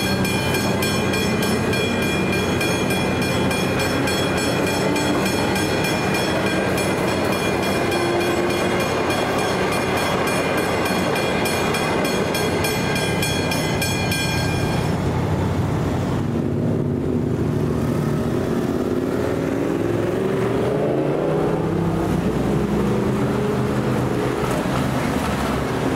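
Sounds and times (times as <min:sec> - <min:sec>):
level crossing bell ringing: 0:00.0 - 0:15.0
electric train rumbling past: 0:00.0 - 0:25.9
car engines: 0:14.9 - 0:25.9.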